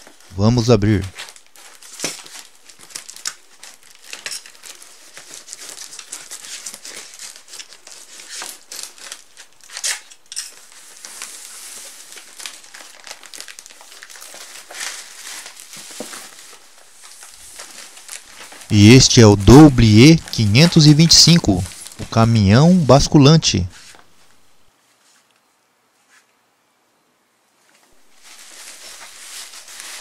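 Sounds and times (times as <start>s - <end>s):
paper crinkling: 0.0s - 24.4s, 28.0s - 30.0s
packing tape ripping: 1.2s - 18.7s.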